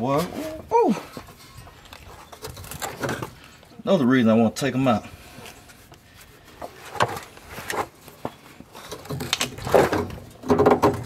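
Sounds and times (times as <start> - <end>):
knocks and rattles under a car: 8.2 - 11.0.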